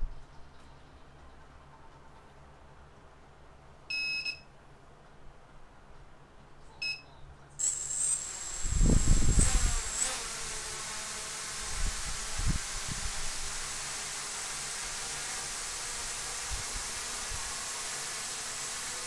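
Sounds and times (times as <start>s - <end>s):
motors high-pitched buzzing whine: 7.6s - 19.0s
quadcopter beeping: 7.6s - 19.0s.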